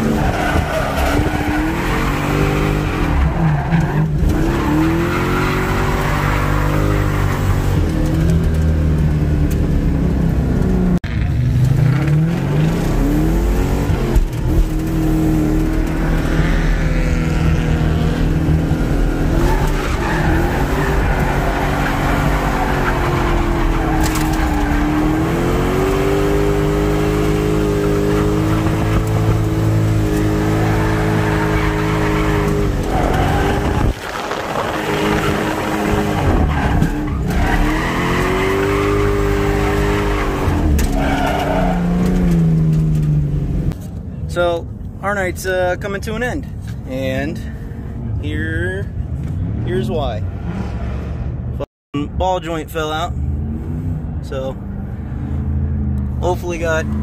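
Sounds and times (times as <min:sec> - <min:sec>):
car engine at high revs: 0:00.0 - 0:43.9
tyres squealing: 0:30.1 - 0:42.4.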